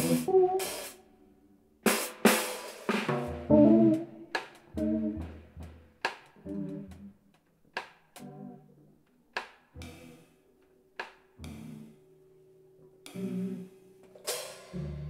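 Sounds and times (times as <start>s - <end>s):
drum and cymbal hits: 0.0s - 1.0s, 1.9s - 6.7s, 14.2s - 15.0s
electric bass notes: 3.3s - 5.8s, 6.4s - 7.1s, 11.4s - 11.9s.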